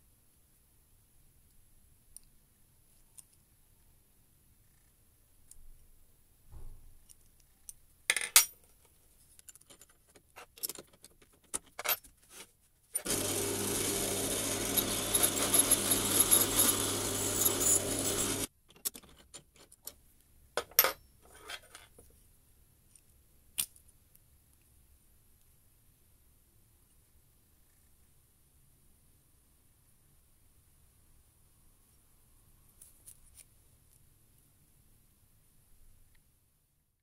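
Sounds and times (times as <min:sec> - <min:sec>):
drill press motor humming: 0:13.0 - 0:18.5.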